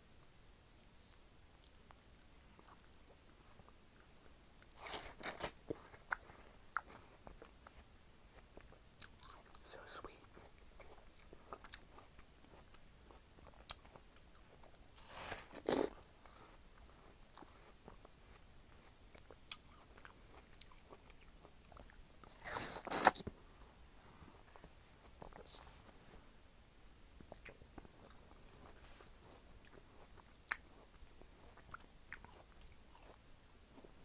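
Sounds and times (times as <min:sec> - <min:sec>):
soft chewing: 0:00.0 - 0:34.0.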